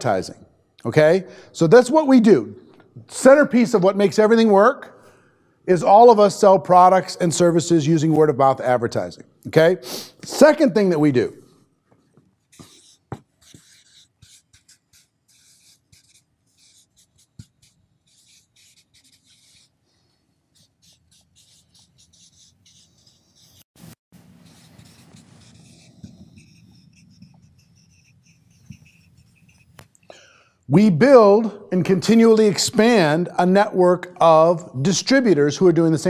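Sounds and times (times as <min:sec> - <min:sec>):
marker writing on whiteboard: 0:12.0 - 0:19.8, 0:20.5 - 0:30.0.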